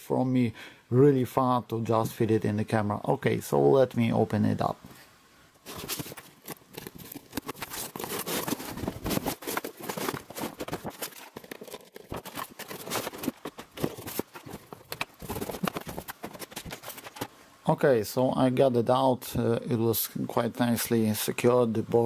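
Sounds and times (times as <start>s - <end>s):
cardboard box being unpacked: 5.6s - 17.3s.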